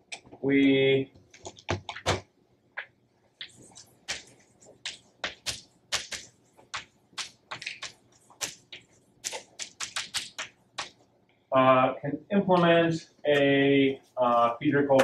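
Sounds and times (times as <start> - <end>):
chalk tapping and scratching on blackboard: 3.4 - 11.0.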